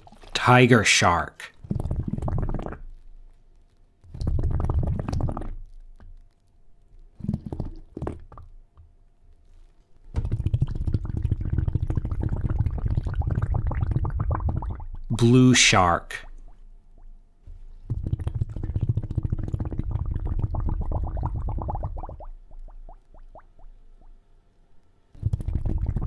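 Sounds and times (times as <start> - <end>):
water gurgling and bubbling: 1.6 - 2.8, 4.2 - 5.5, 10.2 - 15.2, 17.9 - 23.7, 25.2 - 26.0.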